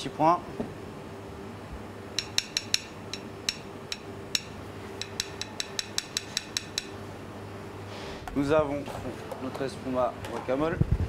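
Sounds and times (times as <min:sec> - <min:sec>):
low kitchen hum: 0:00.0 - 0:11.0
metal spoon clicking on plate: 0:02.2 - 0:07.0.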